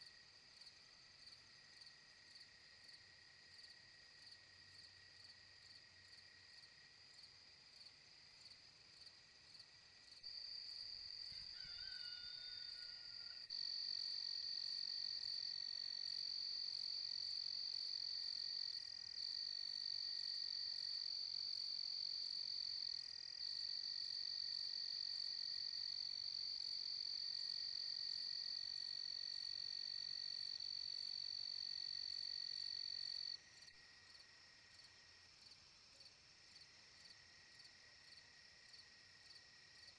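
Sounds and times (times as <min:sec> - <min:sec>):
frogs and insects trilling: 0:10.3 - 0:19.1.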